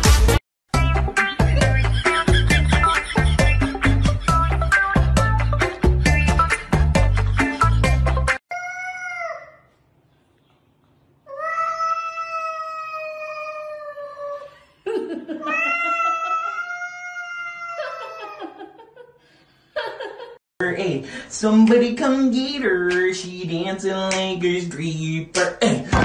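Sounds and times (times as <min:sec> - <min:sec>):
cat yowling: 0:11.3 - 0:14.2, 0:15.4 - 0:18.4.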